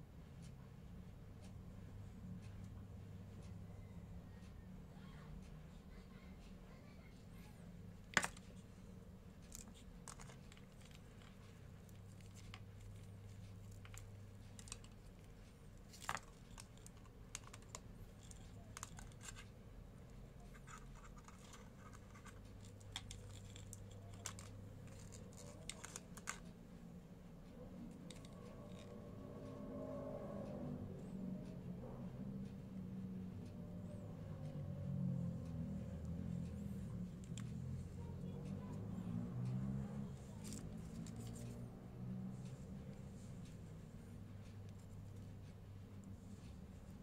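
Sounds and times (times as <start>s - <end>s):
low steady hum: 0.0s - 47.0s
earphones handling clicks and scratches: 8.0s - 26.6s, 27.9s - 28.9s, 35.9s - 38.4s, 39.5s - 41.6s.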